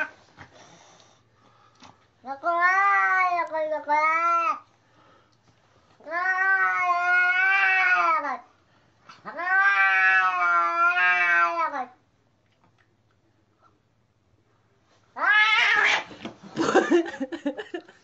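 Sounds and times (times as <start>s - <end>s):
cat meowing: 6.0s - 8.4s, 9.3s - 12.0s, 15.2s - 16.1s.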